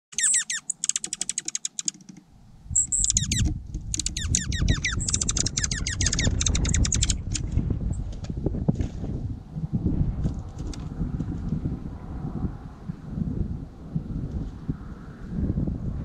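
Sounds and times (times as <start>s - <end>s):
songbird trilling: 0.1s - 2.0s, 2.7s - 7.5s
wind rumble on microphone: 2.3s - 16.0s.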